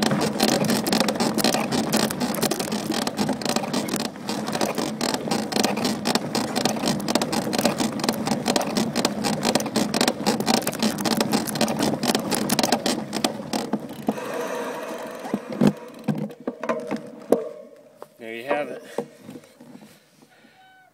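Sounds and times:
bicycle clicks creaks and rattles: 0:00.0 - 0:14.2.

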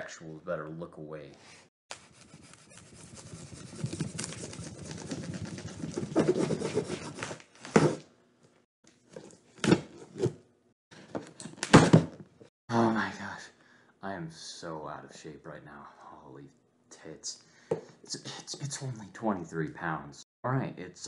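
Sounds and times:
cardboard box rustling and scraping: 0:02.6 - 0:08.0.

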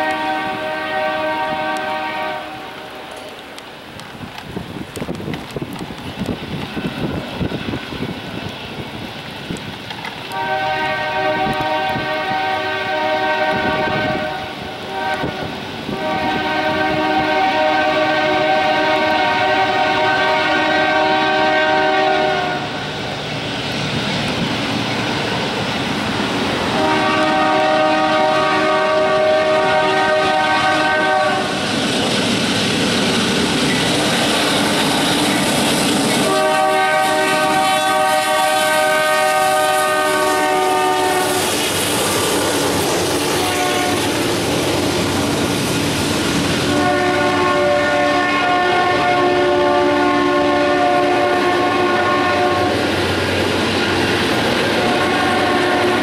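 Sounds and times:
locomotive air horn blasts: 0:00.0 - 0:03.2, 0:10.3 - 0:22.8, 0:26.7 - 0:31.6, 0:36.2 - 0:41.5, 0:43.4 - 0:44.1, 0:46.7 - 0:52.8, 0:54.8 - 0:56.0
train rumbling: 0:00.0 - 0:56.0.

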